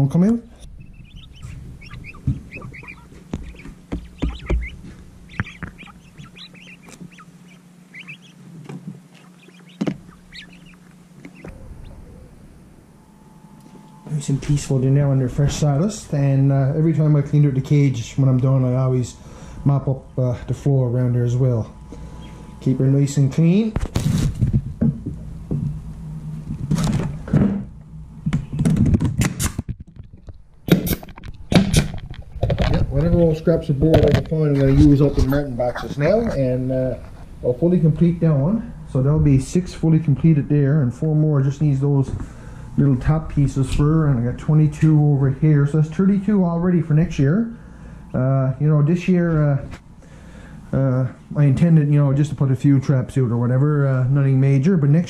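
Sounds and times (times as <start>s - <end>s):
low steady hum: 0.0s - 55.0s
quail chirping: 0.5s - 23.4s, 32.9s - 37.7s.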